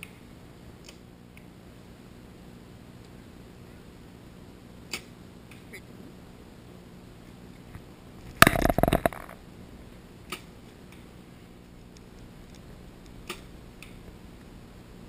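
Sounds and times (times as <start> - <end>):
archery gear clattering: 8.4 - 9.4.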